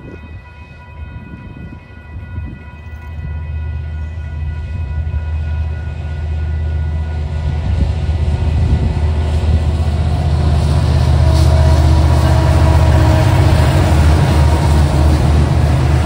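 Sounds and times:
locomotive engine rumble: 0:00.0 - 0:16.0
wheels hissing on rail: 0:07.6 - 0:16.0.

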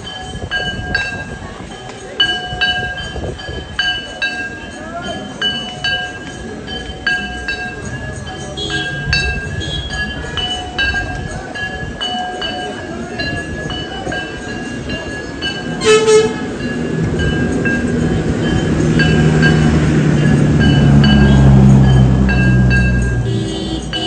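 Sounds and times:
temple bells ringing: 0:00.0 - 0:24.0
low horn-like drone: 0:15.8 - 0:17.0, 0:17.8 - 0:24.0.

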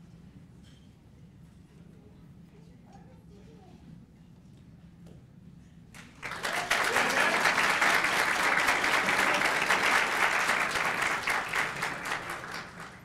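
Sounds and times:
audience applauding: 0:06.0 - 0:13.0.

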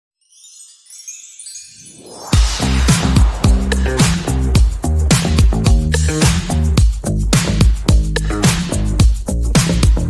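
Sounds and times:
disco-funk music: 0:02.3 - 0:10.0.

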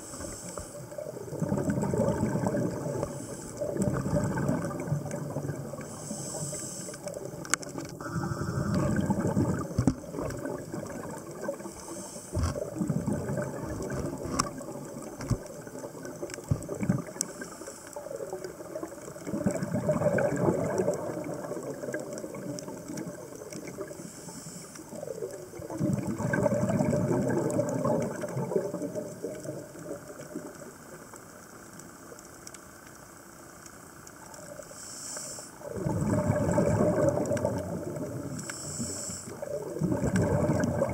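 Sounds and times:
regulator inhalation hiss: 0:00.0 - 0:01.0, 0:03.0 - 0:03.8, 0:05.8 - 0:07.2, 0:11.6 - 0:12.6, 0:17.2 - 0:18.1, 0:23.9 - 0:25.0, 0:34.7 - 0:35.6, 0:38.4 - 0:39.5
exhaled bubbles rushing: 0:00.9 - 0:06.1, 0:07.0 - 0:17.4, 0:18.0 - 0:24.0, 0:24.9 - 0:31.0, 0:35.6 - 0:38.4, 0:39.4 - 0:40.9
sharp clicks and crackles: 0:01.6 - 0:08.0, 0:08.6 - 0:11.5, 0:12.3 - 0:25.8, 0:27.4 - 0:34.7.

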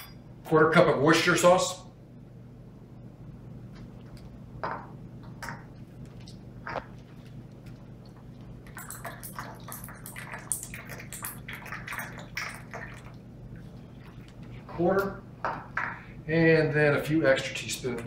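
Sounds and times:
sauce dripping into a cup: 0:07.5 - 0:14.4.

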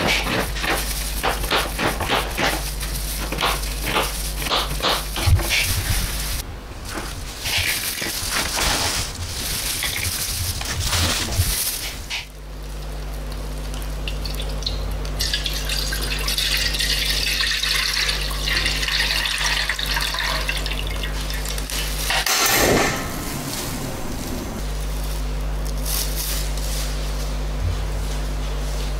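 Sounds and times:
liquid pouring into a wok: 0:14.1 - 0:21.7.

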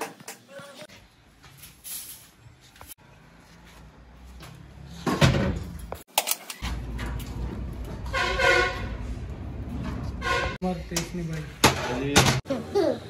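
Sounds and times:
vehicle horn honking: 0:08.1 - 0:09.0, 0:10.2 - 0:10.6.

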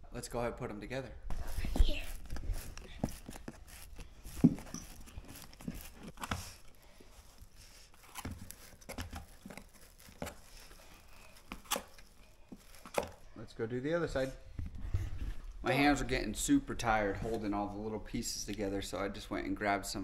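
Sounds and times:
cardboard scraping and rustling: 0:01.3 - 0:13.2.

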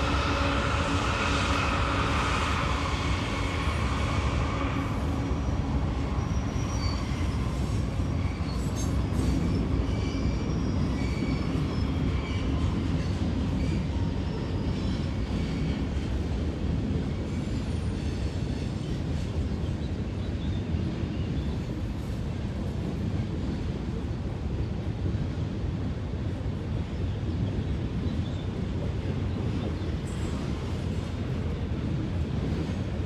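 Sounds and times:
train wheel squeal: 0:00.0 - 0:16.3, 0:17.0 - 0:21.9, 0:27.6 - 0:31.3
freight train rumbling: 0:00.0 - 0:33.0.

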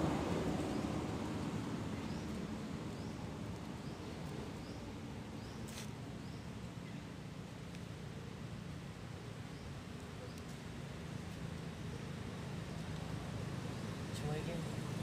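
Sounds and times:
low vehicle rumble: 0:00.0 - 0:07.5.

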